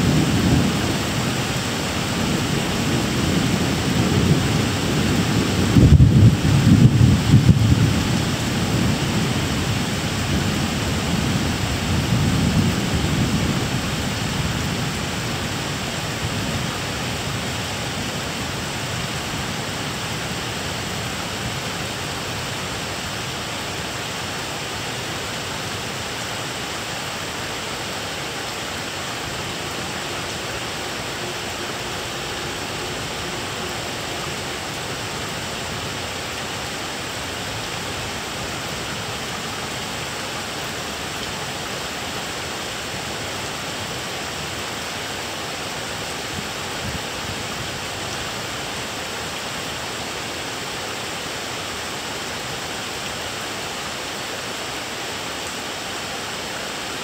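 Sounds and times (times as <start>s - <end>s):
thunder rumbling: 0.0s - 18.6s
rain hissing: 0.0s - 57.0s.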